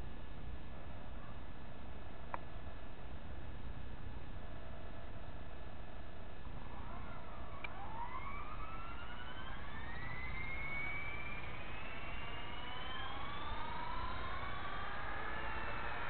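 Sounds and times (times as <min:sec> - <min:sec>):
rc helicopter motor whine rising: 0:06.4 - 0:16.0.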